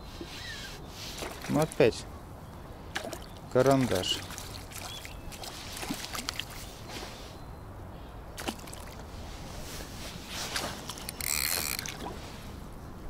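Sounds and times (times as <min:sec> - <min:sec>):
water splashing: 0:01.0 - 0:02.0, 0:02.9 - 0:06.7, 0:08.4 - 0:09.1, 0:10.5 - 0:12.5.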